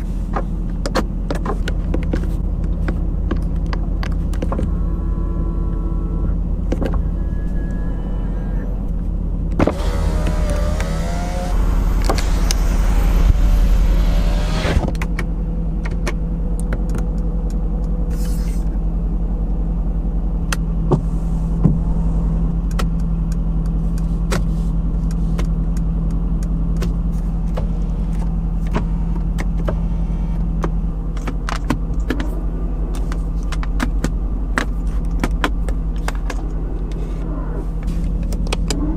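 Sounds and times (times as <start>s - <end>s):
car engine idling: 0.0s - 38.9s
power window motor: 9.6s - 15.0s.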